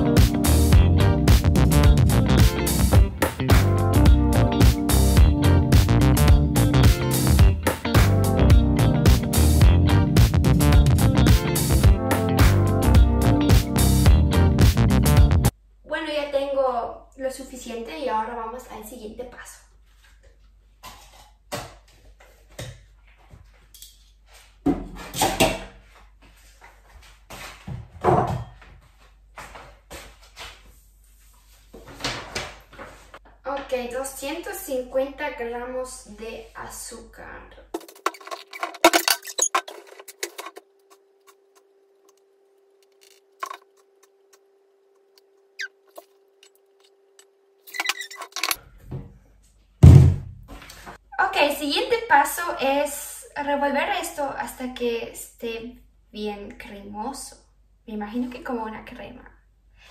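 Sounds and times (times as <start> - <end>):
plastic container clatter: 37.8 - 40.6
spoon and plastic tub knocking: 37.8 - 40.6
faint steady hum: 40.2 - 47.7.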